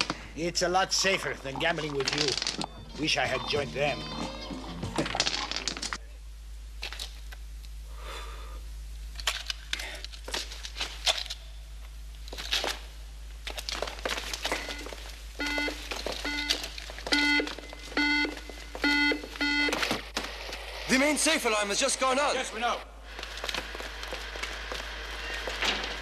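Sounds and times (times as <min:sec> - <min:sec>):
electronic alarm beeping: 0:14.5 - 0:20.0.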